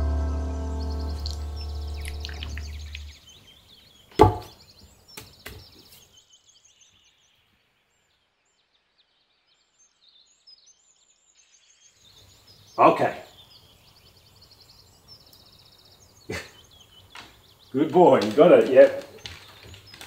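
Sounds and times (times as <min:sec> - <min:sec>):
faint bird chirps: 0:00.5 - 0:20.0
sharp thump: 0:04.2 - 0:04.5.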